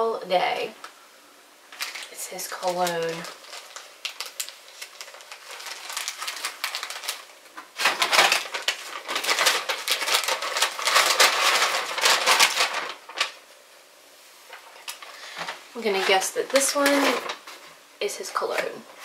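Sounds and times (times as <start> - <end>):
paper bag crinkling: 1.7 - 13.4, 14.5 - 17.8.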